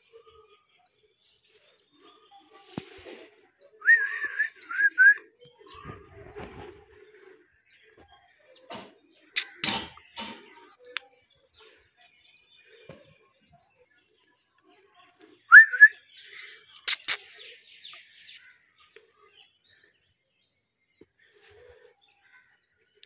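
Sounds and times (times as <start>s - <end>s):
parakeet soft chatter: 16.8s - 17.4s.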